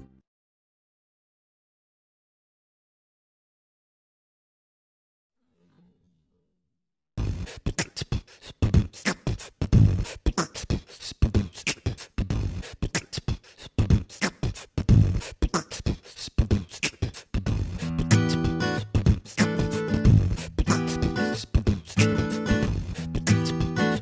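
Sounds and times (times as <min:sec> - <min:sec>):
fast percussive beat: 0:18.1 - 0:24.0.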